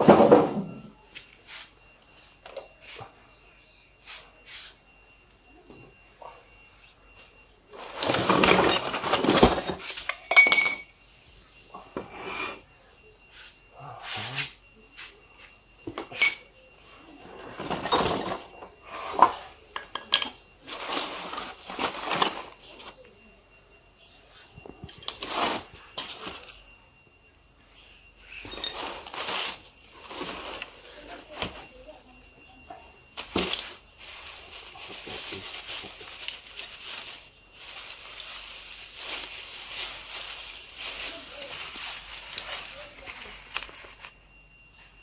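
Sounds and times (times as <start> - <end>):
cardboard and polystyrene rustling: 7.2 - 10.1, 20.6 - 23.0, 24.4 - 26.6, 28.3 - 32.2, 33.2 - 44.1
steel machine parts clinking: 43.1 - 44.2.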